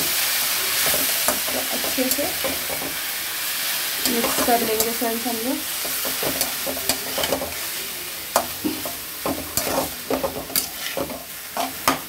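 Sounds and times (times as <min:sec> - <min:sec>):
meat and vegetables sizzling: 0:00.0 - 0:12.0
spatula scraping metal pan: 0:05.8 - 0:07.7, 0:08.4 - 0:12.0.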